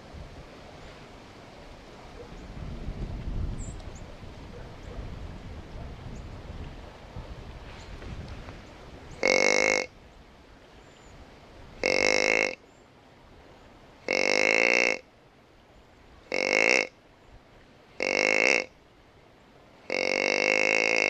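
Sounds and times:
deer grunt call: 0:09.2 - 0:09.9, 0:11.8 - 0:12.6, 0:14.0 - 0:15.1, 0:16.3 - 0:17.0, 0:18.0 - 0:18.7, 0:19.8 - 0:21.0.

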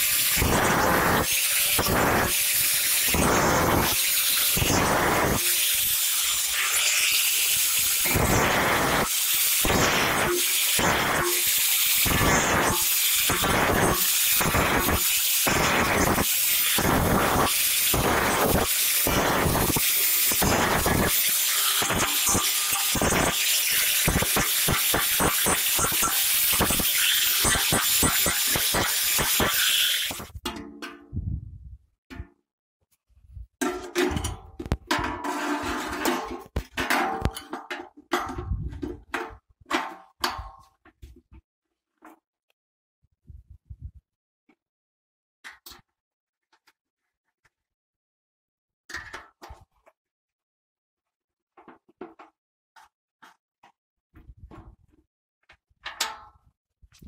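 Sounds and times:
cut-off disc hissing on metal: 0:00.0 - 0:30.3.

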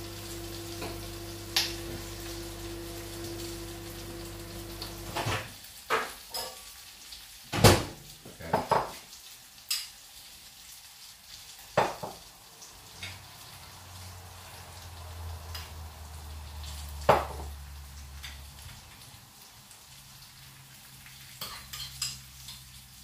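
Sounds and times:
dishes and utensils clinking: 0:05.2 - 0:06.7, 0:12.9 - 0:13.3, 0:21.3 - 0:22.7.

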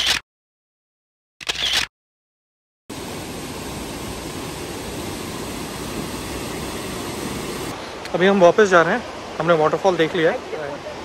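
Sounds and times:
camera shutter click: 0:01.4 - 0:01.9
waterfall rushing: 0:02.9 - 0:10.8.

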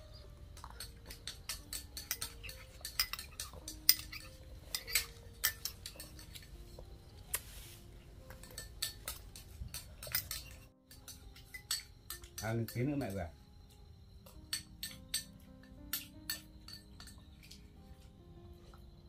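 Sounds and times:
spoon clinking against bowl: 0:00.6 - 0:06.5, 0:08.3 - 0:13.2, 0:14.2 - 0:17.6.

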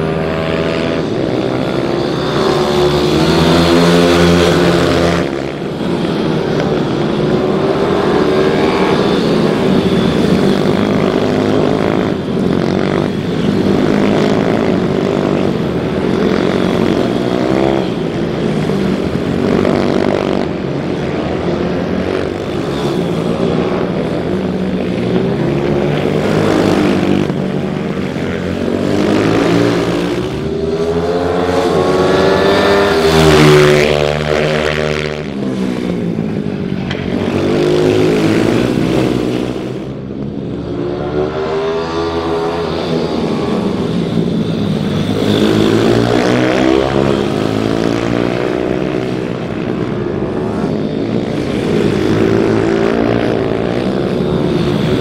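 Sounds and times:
minibike engines revving past: 0:00.0 - 0:55.0.

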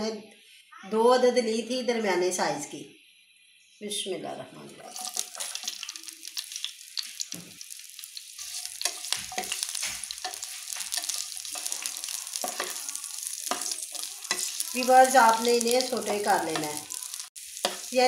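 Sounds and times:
peppers sizzling in oil: 0:04.8 - 0:18.0
spatula scraping and tapping pan: 0:04.9 - 0:07.6, 0:08.2 - 0:18.0.

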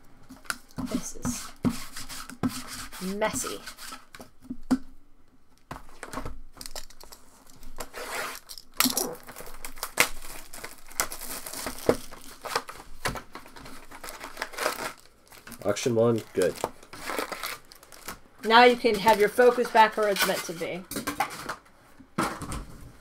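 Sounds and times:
plastic shrink wrap crinkling and tearing: 0:05.9 - 0:20.2.

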